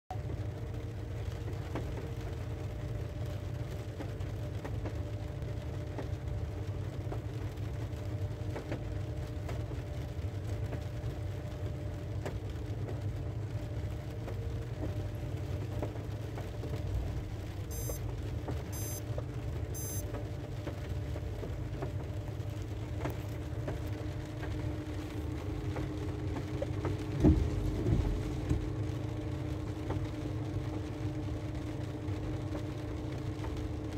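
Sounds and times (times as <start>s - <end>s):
rain pattering on a car: 0.1s - 33.9s
short high electronic beeps: 17.7s - 18.0s, 18.8s - 19.0s, 19.8s - 20.0s.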